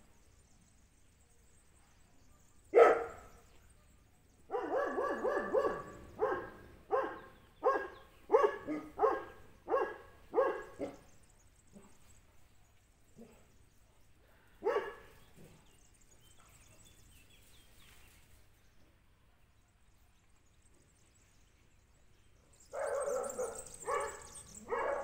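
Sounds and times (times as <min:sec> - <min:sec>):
dog barking: 0:02.7 - 0:03.3, 0:04.5 - 0:11.1, 0:14.6 - 0:15.5, 0:22.7 - 0:25.0.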